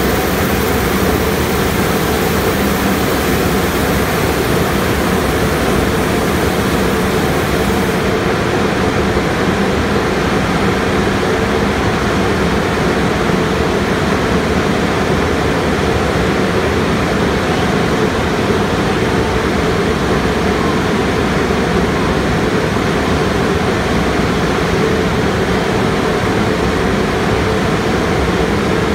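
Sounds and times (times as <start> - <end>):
water spray hiss: 0.0 - 8.1
dryer blowers fan noise: 0.0 - 28.9.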